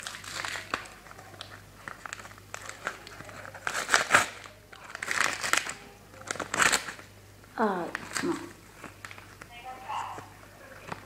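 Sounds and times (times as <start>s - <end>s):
wrapper crinkling and tearing: 0.0s - 7.1s, 7.8s - 9.4s.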